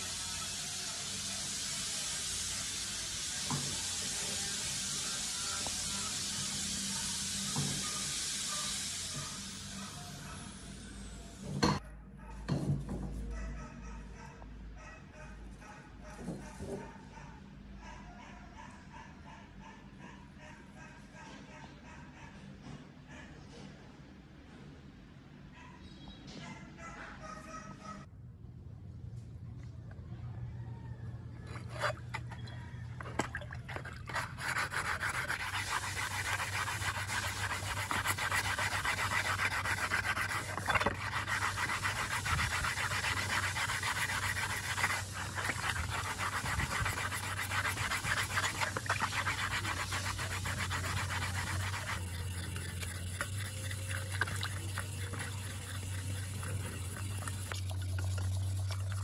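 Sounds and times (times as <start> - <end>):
sponge scrubbing metal in water: 31.5 - 59.0
wet sandpaper strokes: 33.1 - 57.8
water splashing: 33.1 - 59.0.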